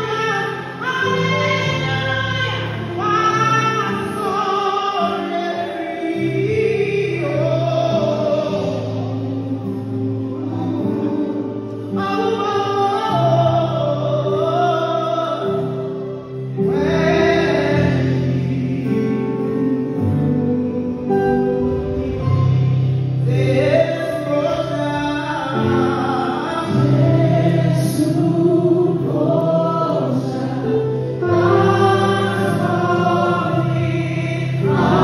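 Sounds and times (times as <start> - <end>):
woman singing into a microphone: 0.0 - 15.7
sustained keyboard chords: 0.0 - 35.0
backing singers: 16.7 - 35.0.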